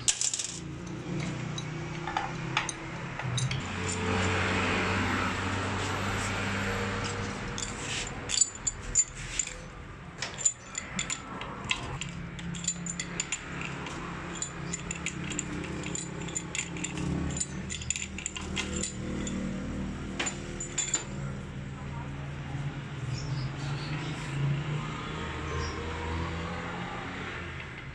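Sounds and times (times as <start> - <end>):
wrench clinking on metal: 0.0 - 4.1, 7.5 - 21.2.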